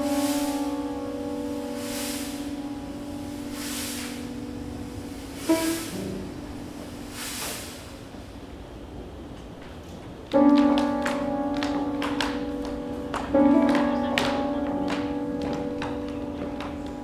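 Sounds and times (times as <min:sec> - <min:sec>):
ringing sustained chord: 0:00.0 - 0:07.2.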